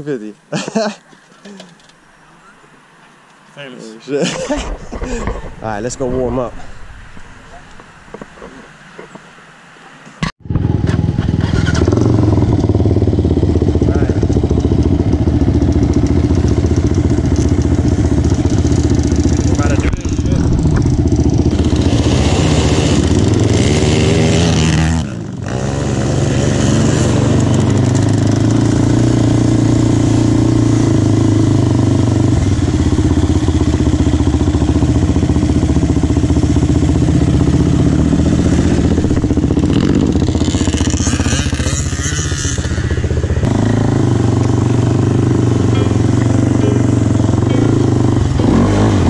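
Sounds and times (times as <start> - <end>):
quad engine revving: 10.4 - 49.0.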